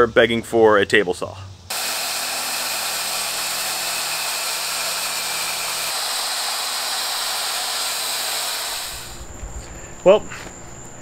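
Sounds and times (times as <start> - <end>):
circular saw cutting plywood: 1.7 - 9.2.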